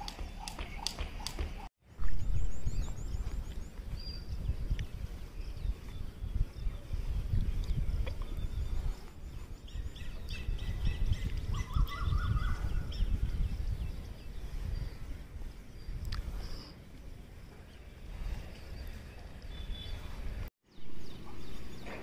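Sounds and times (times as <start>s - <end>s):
birds chirping and trilling: 0.0s - 22.0s
wind rumble on microphone: 1.8s - 22.0s.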